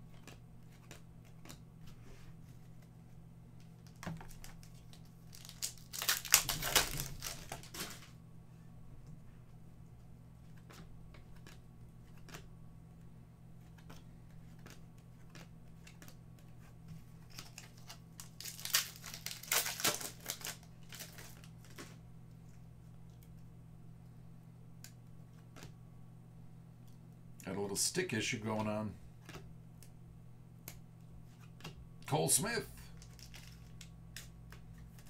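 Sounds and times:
foil pack crinkling and tearing: 3.8 - 8.1, 17.1 - 22.0, 32.8 - 35.0.

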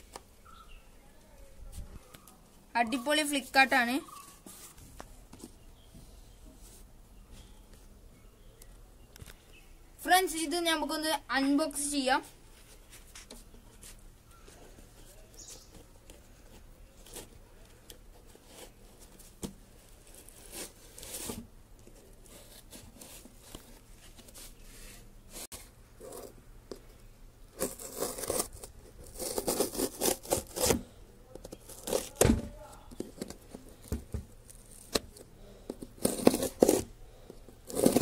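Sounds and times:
tape ripping: 27.5 - 38.0
scissors slitting packing tape: 27.6 - 30.8.

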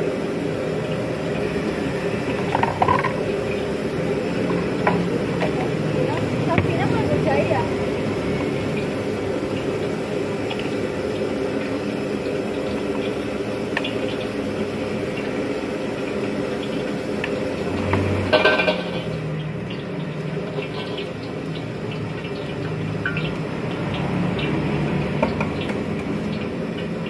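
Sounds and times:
gas wok burner running: 0.0 - 27.0
utensils clicking and clattering: 2.4 - 3.6, 17.8 - 19.2.

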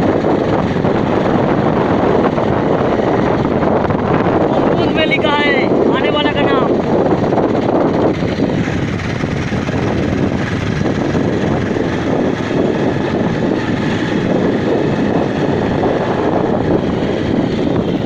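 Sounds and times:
motorcycle riding with wind noise: 0.0 - 18.0.

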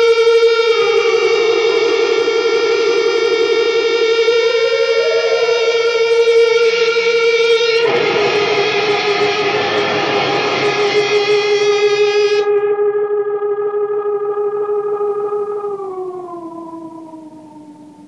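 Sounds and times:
electric guitar drone: 0.0 - 18.0
harsh noisy guitar layer: 0.8 - 12.5.

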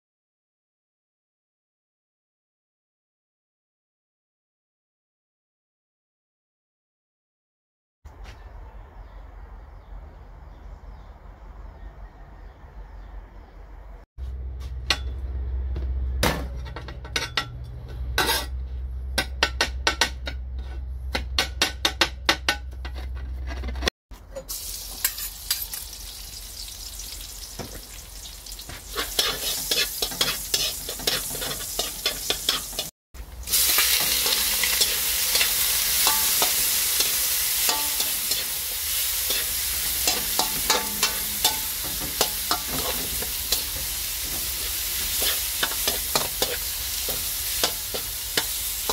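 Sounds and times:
metal spatula scraping a wok: 16.4 - 25.9, 28.7 - 32.9, 33.5 - 48.9
chicken wings frying: 24.5 - 48.9
garlic sizzling in hot oil: 24.5 - 48.9
low hum: 39.9 - 42.7.

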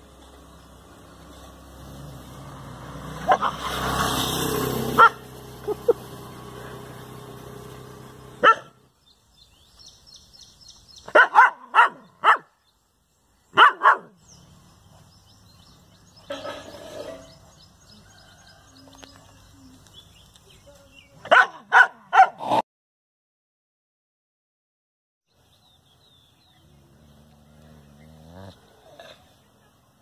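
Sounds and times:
dog barking: 3.2 - 3.7, 5.0 - 5.2, 8.4 - 8.8, 11.1 - 12.6, 13.6 - 14.2, 21.2 - 22.6.

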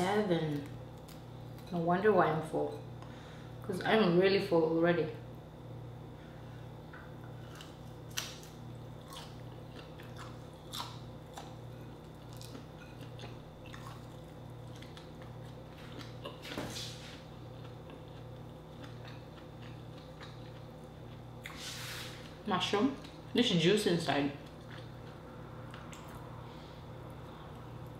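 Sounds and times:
close-up chewing: 7.3 - 21.6.

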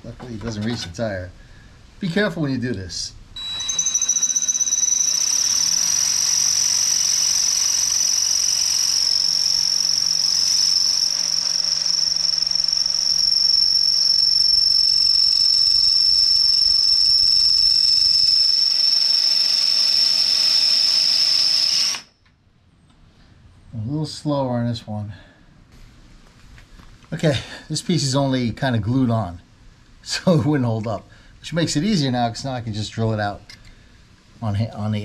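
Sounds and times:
cordless drill whining: 3.4 - 22.2.

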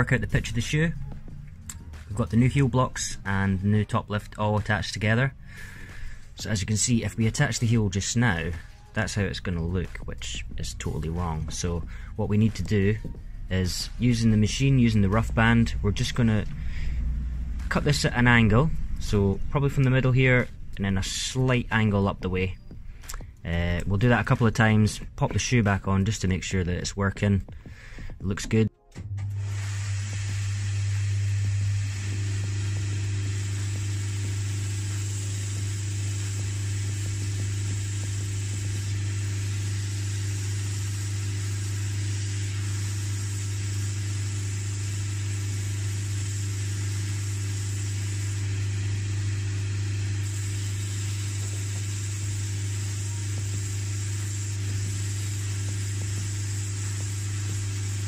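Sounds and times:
machine humming: 0.0 - 25.2, 27.4 - 58.0
sanding band grinding leather: 29.5 - 58.0.

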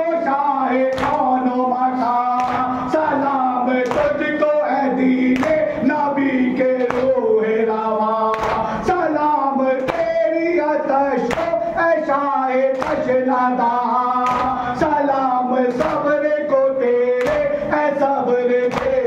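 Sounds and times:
man singing mournful melody: 0.0 - 19.0
chest-beating slaps: 0.9 - 1.3, 8.3 - 8.7, 11.3 - 11.6, 14.2 - 14.6, 18.7 - 19.0.

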